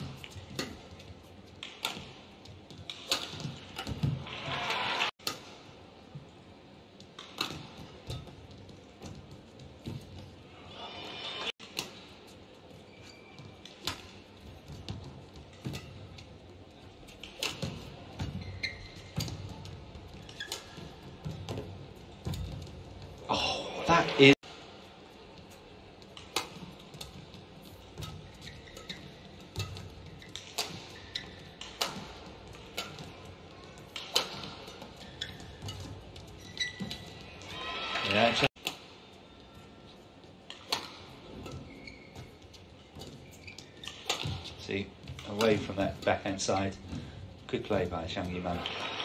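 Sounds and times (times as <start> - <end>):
court shoes squeaking: 0.0 - 23.3, 23.9 - 49.0
racket striking shuttlecock: 1.6 - 2.2, 2.8 - 5.6, 7.1 - 8.3, 17.2 - 18.4, 26.1 - 37.5, 38.6 - 39.0, 40.4 - 41.8, 43.8 - 44.6.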